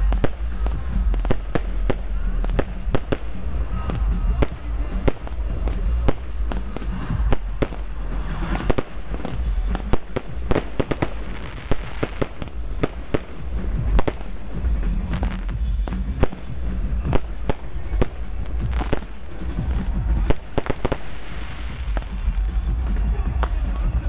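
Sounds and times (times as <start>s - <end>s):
fireworks bangs and pops: 0.0s - 24.0s
fireworks hiss: 0.0s - 24.0s.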